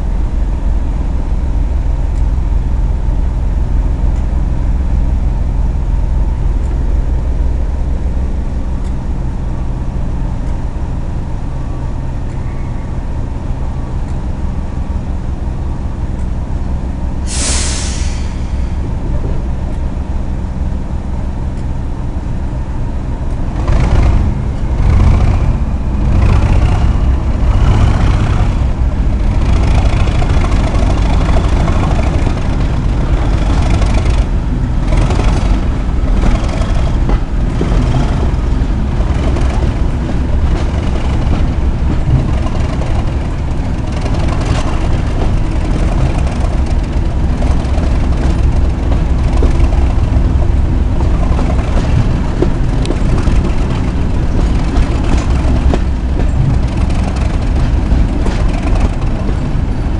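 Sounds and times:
diesel locomotive engine running: 0.0 - 59.9
air hiss: 17.2 - 18.8.

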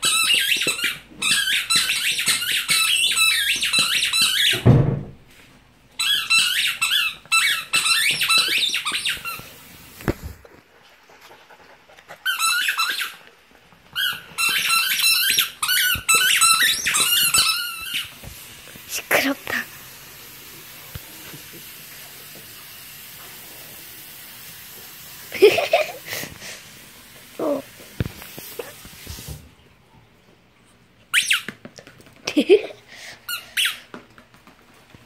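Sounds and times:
dog chewing a squeaky toy: 0.0 - 4.6, 6.0 - 9.6, 12.1 - 18.2, 31.1 - 31.6, 33.3 - 33.9.

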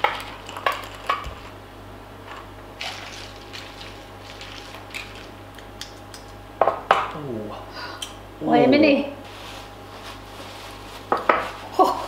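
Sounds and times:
liquid sloshing: 2.8 - 5.4.

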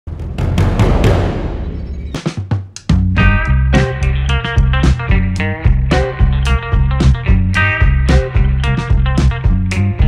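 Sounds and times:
drum hits: 0.1 - 9.4
band with bass and guitar: 2.9 - 10.0.

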